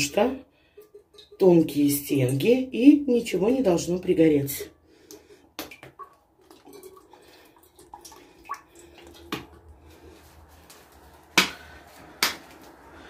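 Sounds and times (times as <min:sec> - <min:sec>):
oil trickling into pot: 0:00.6 - 0:02.5, 0:05.1 - 0:09.9.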